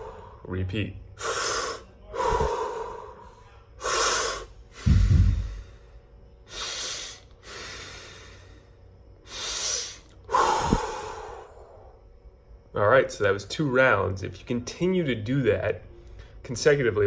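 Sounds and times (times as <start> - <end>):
man breathing forcefully: 0.0 - 0.5, 1.2 - 12.0.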